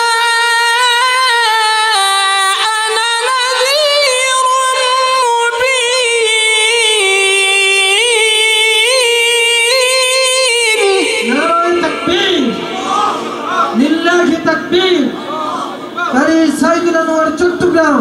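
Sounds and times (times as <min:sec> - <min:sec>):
man reciting melismatic chant: 0:00.0 - 0:18.0.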